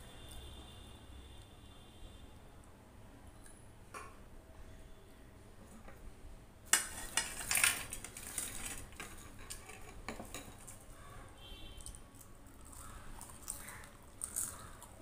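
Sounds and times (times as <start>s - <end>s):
crackly rustling: 6.7s - 10.9s.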